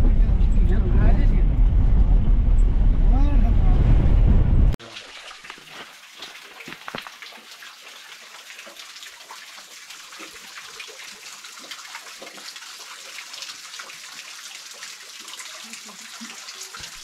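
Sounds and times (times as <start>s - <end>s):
stream water splashing over rocks: 4.8s - 17.0s.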